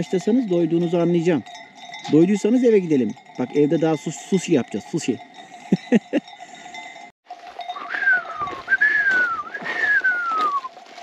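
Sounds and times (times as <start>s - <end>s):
person whistling falling notes: 7.8s - 10.7s.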